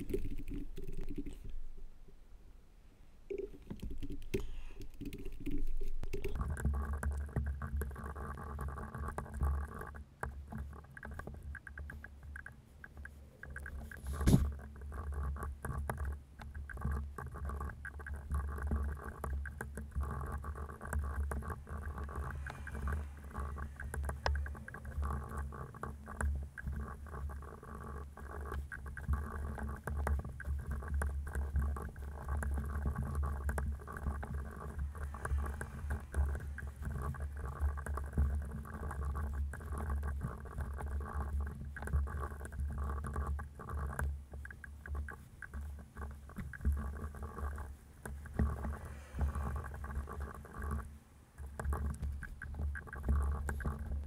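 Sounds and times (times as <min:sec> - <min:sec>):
keyboard typing: 0:00.0 - 0:01.6, 0:03.3 - 0:07.3
steady low rumble: 0:21.2 - 0:26.2, 0:33.7 - 0:39.1.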